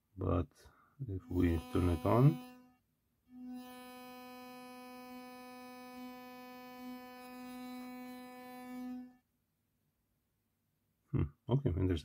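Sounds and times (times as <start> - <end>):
electric toothbrush buzzing: 1.3 - 9.2.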